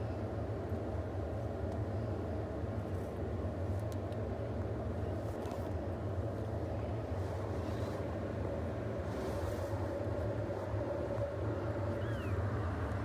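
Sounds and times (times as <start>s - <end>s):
steady low rumble: 0.0s - 13.0s
faint light ticks: 1.6s - 1.8s, 3.8s - 4.7s.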